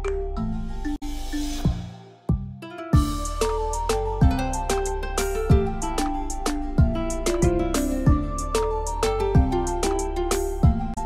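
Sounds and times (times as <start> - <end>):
deep drum beat: 1.6 - 8.6, 9.4 - 9.7, 10.3 - 11.0
held melodic notes: 2.6 - 11.0.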